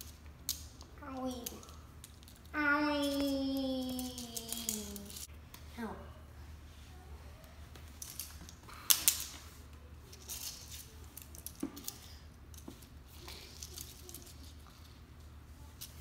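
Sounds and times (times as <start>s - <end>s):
plastic toys clicking and clacking: 0.0s - 5.3s, 7.9s - 9.4s, 10.1s - 14.7s
faint low hum: 0.0s - 16.0s.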